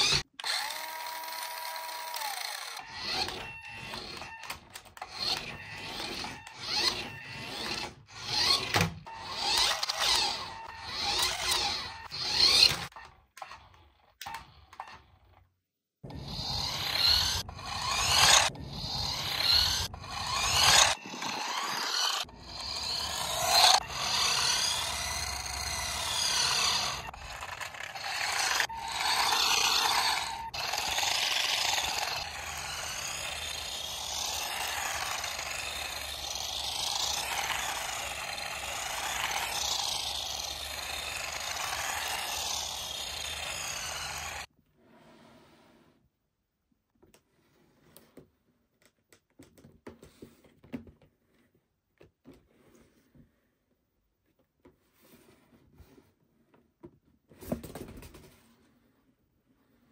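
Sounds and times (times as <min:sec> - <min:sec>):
toy car rasping grind: 0:00.0 - 0:15.4, 0:16.0 - 0:44.5.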